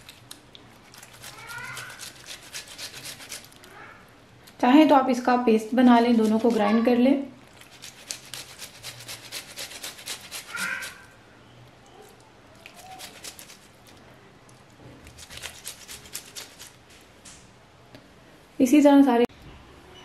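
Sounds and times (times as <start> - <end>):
tomato rasping on metal grater: 1.0 - 3.6, 5.6 - 7.0, 7.6 - 11.1, 12.6 - 13.9, 15.1 - 16.8.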